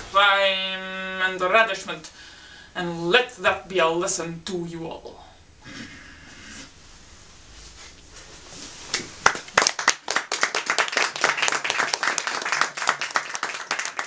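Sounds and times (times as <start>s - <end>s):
audience clapping: 9.2s - 14.0s.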